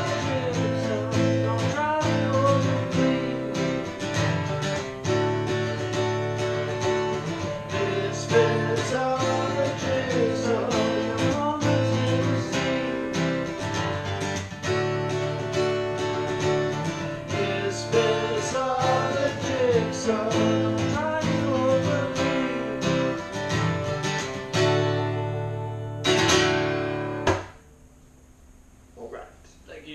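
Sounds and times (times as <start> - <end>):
person singing: 0.0 - 4.0, 7.2 - 13.4, 17.2 - 23.3
acoustic guitars strumming: 0.0 - 27.8.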